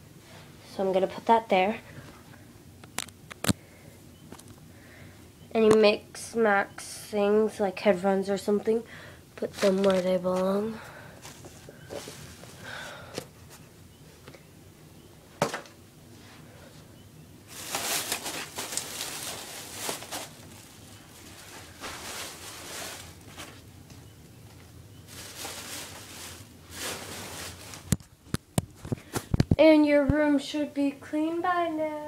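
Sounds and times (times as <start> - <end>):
rustling and handling noise: 9.4 - 14.5, 15.3 - 30.4.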